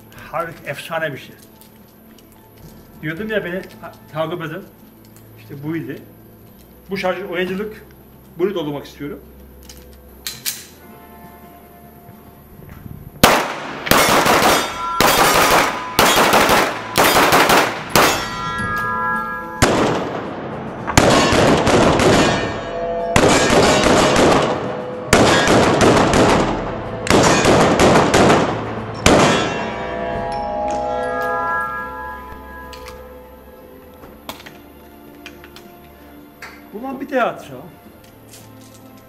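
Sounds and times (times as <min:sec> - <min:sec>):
pistol shots echoing indoors: 0:13.2 - 0:18.4, 0:23.2 - 0:29.6.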